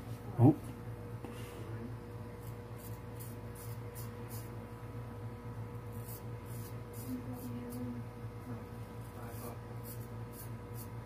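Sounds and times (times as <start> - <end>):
razor scraping stubble: 2.4 - 4.6, 5.9 - 7.9, 9.2 - 11.0.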